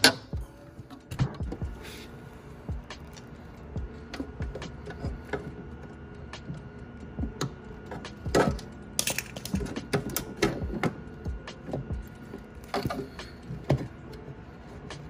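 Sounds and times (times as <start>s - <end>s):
clicks and knocks of handled parts: 7.4s - 14.2s.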